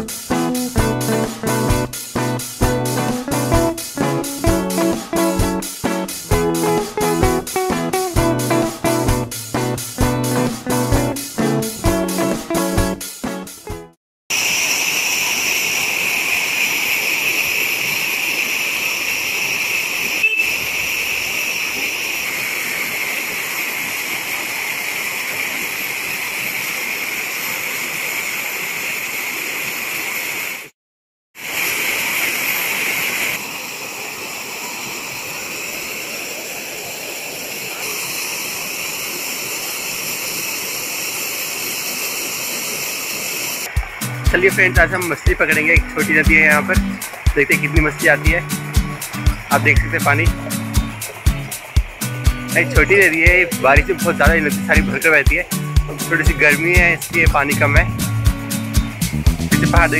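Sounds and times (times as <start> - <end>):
waterfall rushing over rocks: 14.3 - 30.7, 31.4 - 59.1.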